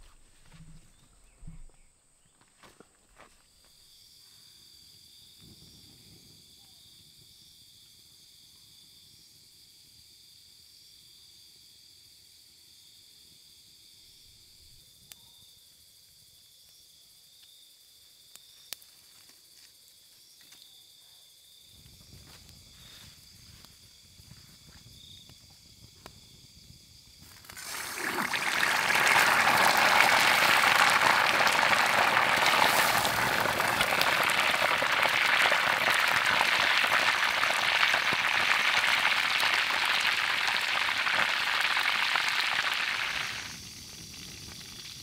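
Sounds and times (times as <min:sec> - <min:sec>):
crickets chirring: 0:00.9 - 0:45.0
campfire burning: 0:27.3 - 0:45.0.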